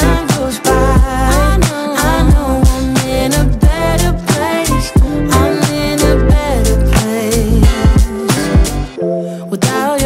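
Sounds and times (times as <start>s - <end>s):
rhythm and blues music: 0.0s - 10.0s
deep bass drum hits: 7.6s - 8.8s.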